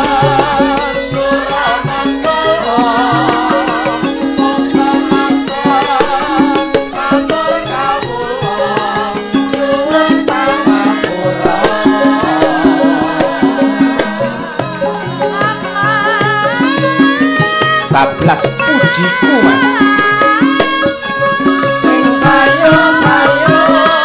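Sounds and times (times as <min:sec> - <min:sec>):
woman singing ornamented vocal line: 0:00.0 - 0:18.0, 0:18.6 - 0:24.0
gamelan ensemble playing: 0:00.0 - 0:24.0.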